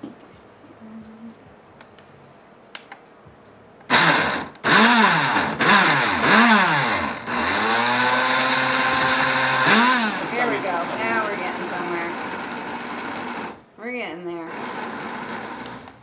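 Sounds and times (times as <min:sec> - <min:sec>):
blender motor pulsing: 0:03.9 - 0:13.7, 0:14.4 - 0:16.0.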